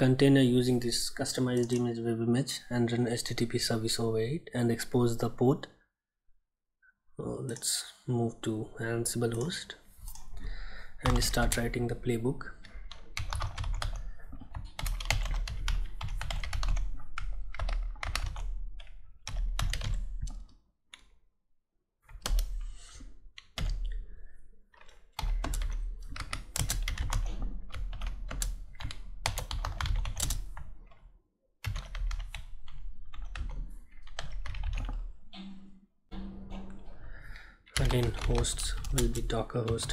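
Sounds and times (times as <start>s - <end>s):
computer keyboard typing: 12.6s - 20.4s, 22.1s - 22.6s, 23.4s - 24.0s, 24.8s - 31.0s, 31.6s - 35.1s, 37.8s - 39.9s.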